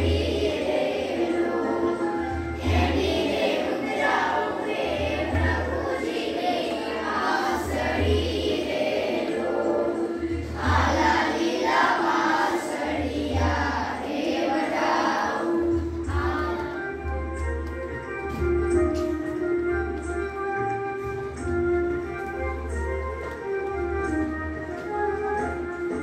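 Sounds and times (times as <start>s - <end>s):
children singing together: 0.0s - 17.4s.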